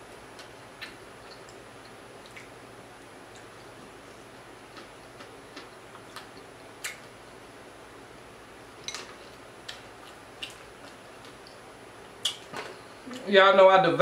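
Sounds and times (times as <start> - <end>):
chewing crackles: 0.3 - 2.6, 4.7 - 7.1, 9.1 - 11.6.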